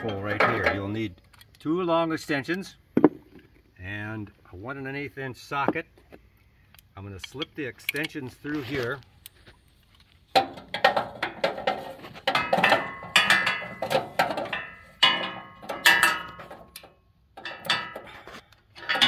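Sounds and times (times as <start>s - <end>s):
steel extensions clanking: 0.0s - 1.7s, 10.3s - 19.0s.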